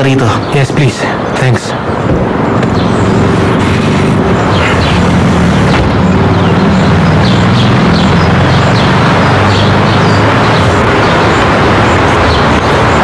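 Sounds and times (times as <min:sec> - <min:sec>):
vehicle noise: 0:00.0 - 0:13.0
high bird chirps: 0:02.7 - 0:13.0.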